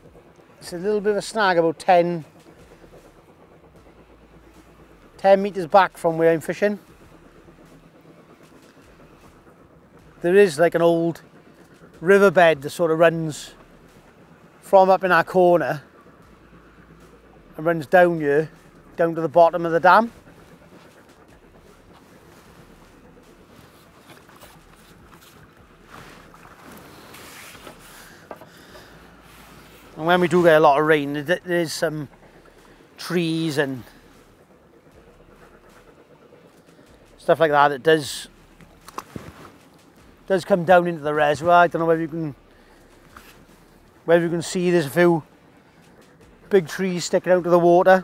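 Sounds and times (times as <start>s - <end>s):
water lapping and splashing: 15.4s - 37.4s, 38.3s - 44.1s.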